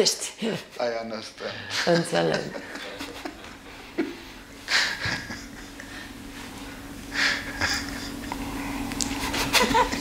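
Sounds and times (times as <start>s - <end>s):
low hum: 2.5s - 10.0s
man laughing breathily: 2.6s - 6.2s, 7.1s - 10.0s.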